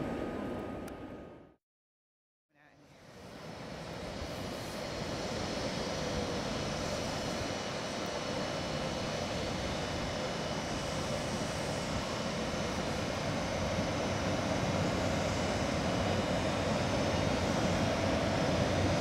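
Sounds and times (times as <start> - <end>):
train arriving hum and rumble: 0.0 - 1.5.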